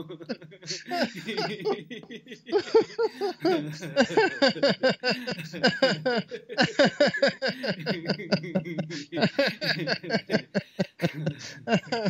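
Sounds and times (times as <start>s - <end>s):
men laughing rhythmically: 0.0s - 12.0s.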